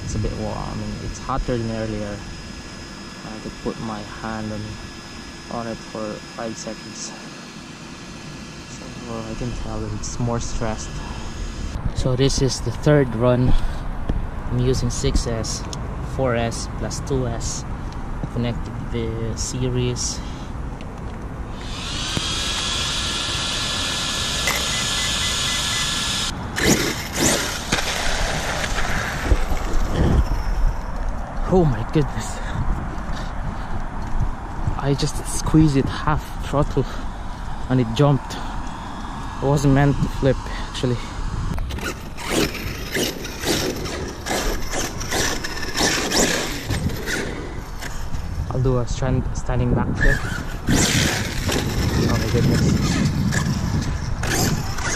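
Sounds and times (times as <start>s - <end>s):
electric motor whining: 0.0s - 14.2s, 21.4s - 32.0s, 37.1s - 48.6s, 50.0s - 54.9s.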